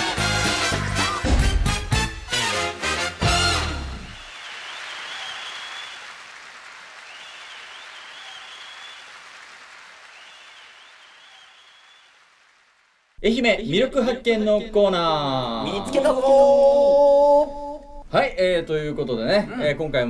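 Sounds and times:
applause sound effect: 0:02.8 - 0:13.1.

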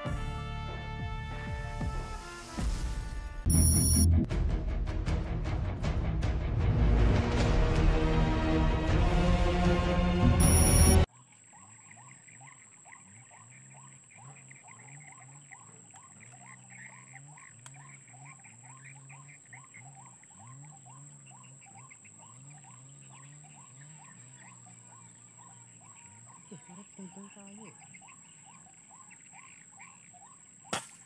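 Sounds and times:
waterhen calls: 0:10.4 - 0:30.8.

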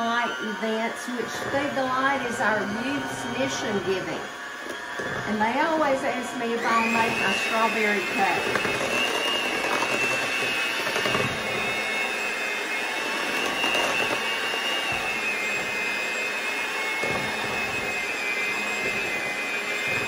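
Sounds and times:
electric hand mixer whining: 0:00.0 - 0:20.0.

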